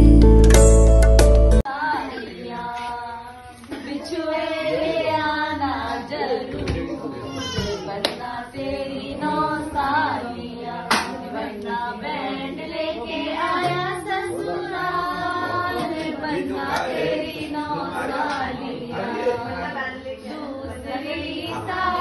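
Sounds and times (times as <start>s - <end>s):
music: 0.0s - 1.7s
several voices singing: 1.6s - 22.0s.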